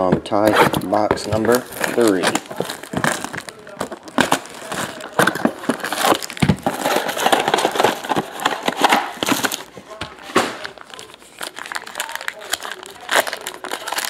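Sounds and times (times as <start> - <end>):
plastic shrink wrap crinkling: 0.3 - 14.0.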